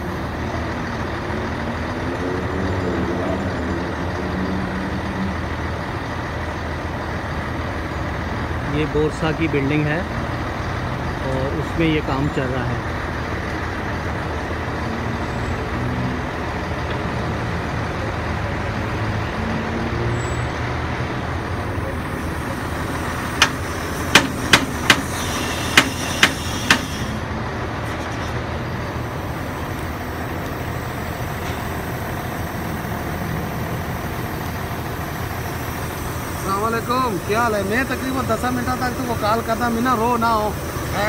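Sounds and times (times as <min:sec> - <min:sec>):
road traffic: 0:00.0 - 0:41.0
truck engine rumbling: 0:00.0 - 0:41.0
sharp clicks or knocks: 0:23.4 - 0:25.1, 0:25.7 - 0:26.9.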